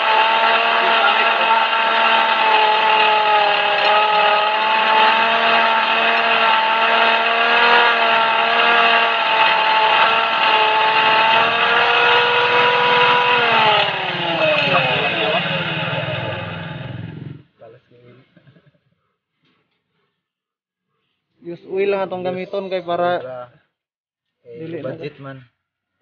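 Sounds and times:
electric grinder whining: 0.0s - 17.3s.

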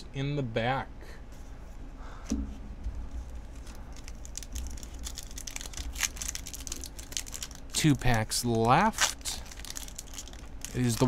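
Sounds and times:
foil wrapper crinkling and tearing: 3.1s - 11.0s.

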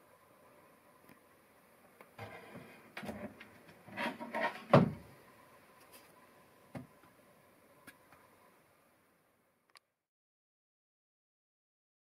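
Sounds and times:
wood and metal clatter: 2.2s - 5.1s.

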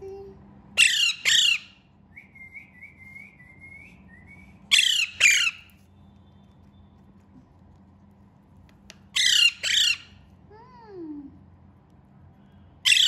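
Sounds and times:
parakeet squawking: 0.8s - 1.8s, 4.7s - 5.7s, 9.1s - 10.2s
parakeet soft chirps: 9.2s - 10.2s.

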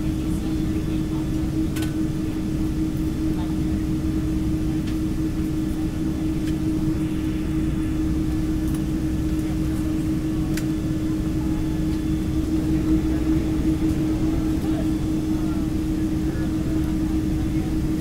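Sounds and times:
airliner cabin rumble: 0.0s - 18.0s
faint clicks: 10.5s - 10.7s.

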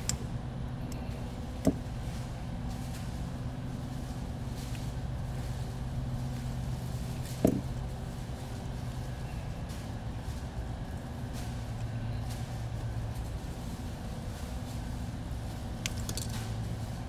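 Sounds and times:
low electrical hum: 0.0s - 17.0s
small tool handling noises: 15.8s - 16.6s.

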